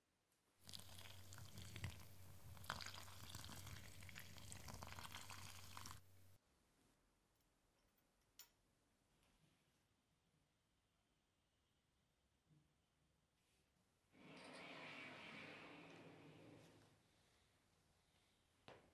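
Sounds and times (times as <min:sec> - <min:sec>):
hot water pouring into glass: 0:00.6 - 0:06.1.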